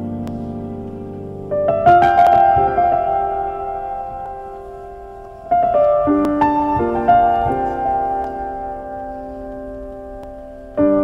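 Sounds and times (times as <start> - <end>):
gentle piano music: 0.0 - 11.0.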